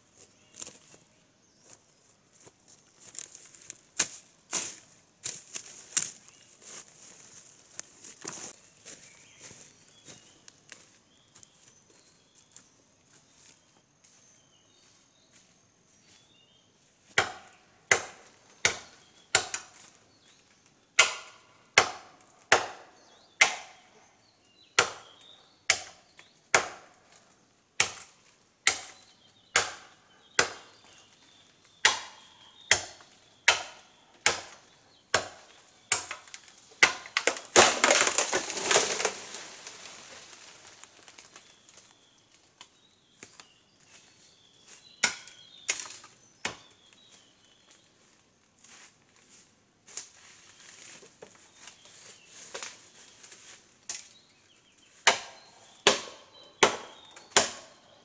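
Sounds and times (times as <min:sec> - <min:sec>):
machete chopping bamboo: 0:17.1 - 0:19.8, 0:21.0 - 0:23.9, 0:24.8 - 0:26.9, 0:27.8 - 0:30.8, 0:31.8 - 0:39.2, 0:45.0 - 0:46.7, 0:55.0 - 0:57.9
bamboo crashing through leaves: 0:35.9 - 0:41.9.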